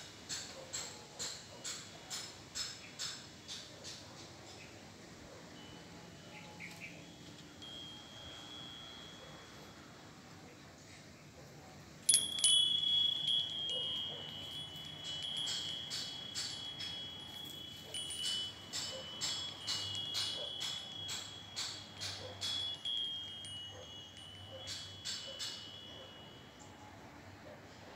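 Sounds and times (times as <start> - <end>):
wind chime ringing: 5.6 - 10.7, 12.0 - 27.4.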